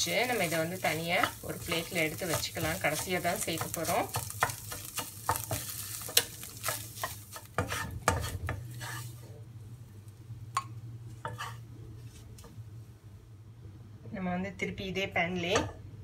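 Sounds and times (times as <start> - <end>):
spatula scraping a pan: 0.0 - 9.3, 11.2 - 12.3
light sizzle: 0.0 - 13.2.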